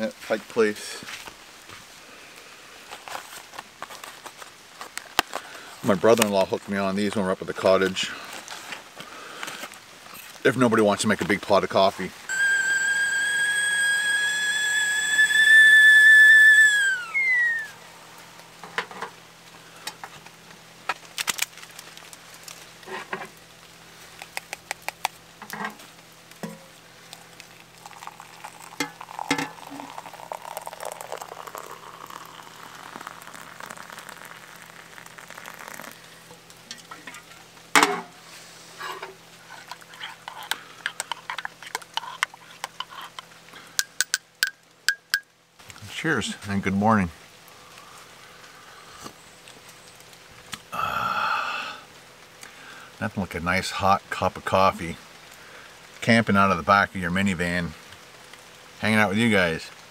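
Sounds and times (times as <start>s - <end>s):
hot water pouring into mug: 12.3s - 17.7s, 27.1s - 36.5s
kettle whistling: 12.3s - 17.9s, 27.8s - 36.0s.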